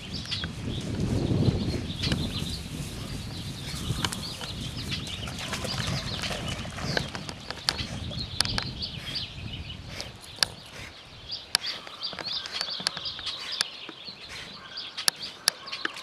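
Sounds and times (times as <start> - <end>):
small birds chirping: 0.0 - 16.0
dog splashing in water: 5.0 - 7.6.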